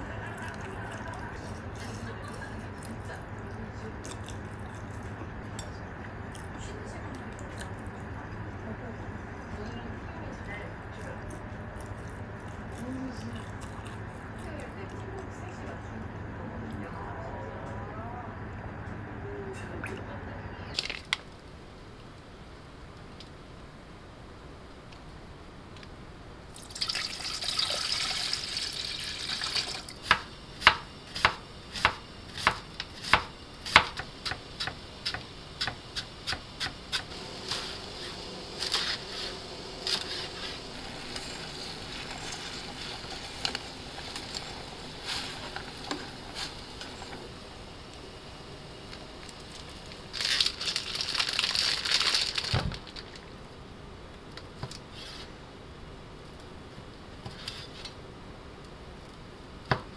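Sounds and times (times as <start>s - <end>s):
rustling hiss: 28.3s - 53.8s
knife chopping lettuce on board: 30.0s - 36.8s.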